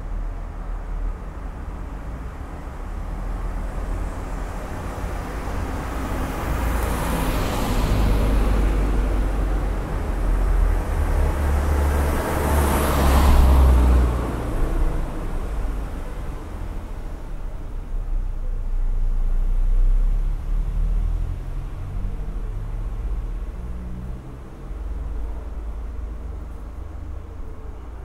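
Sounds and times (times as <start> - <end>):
cars passing: 0.0 - 28.0
low traffic rumble: 0.0 - 28.0.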